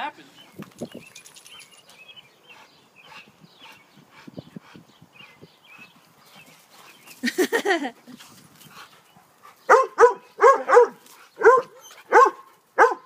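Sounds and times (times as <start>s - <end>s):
dog barking: 9.7s - 13.0s.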